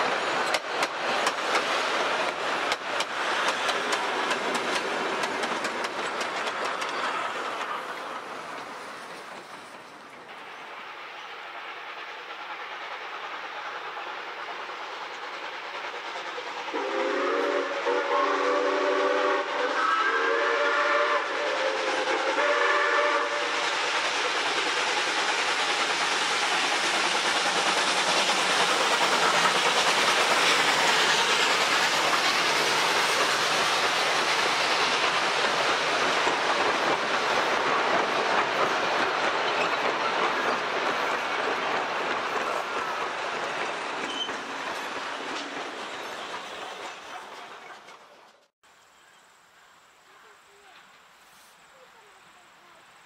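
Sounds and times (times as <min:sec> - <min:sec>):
wheels clacking over rail joints: 0:00.0 - 0:10.6, 0:22.8 - 0:48.5
steam locomotive passing: 0:00.0 - 0:49.2, 0:49.8 - 0:53.0
steam whistle blasts: 0:16.7 - 0:23.6.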